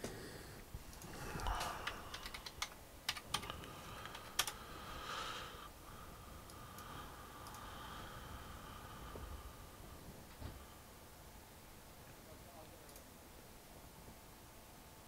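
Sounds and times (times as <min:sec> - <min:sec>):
faint steady hum: 0:00.0 - 0:15.0
computer keyboard key clicks: 0:00.9 - 0:04.6.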